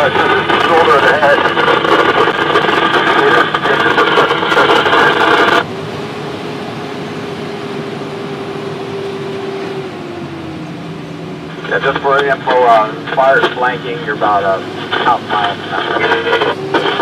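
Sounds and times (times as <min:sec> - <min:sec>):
crackling radio transmission: 0:00.0 - 0:05.6, 0:11.5 - 0:17.0
fire engine and road noise: 0:00.0 - 0:17.0.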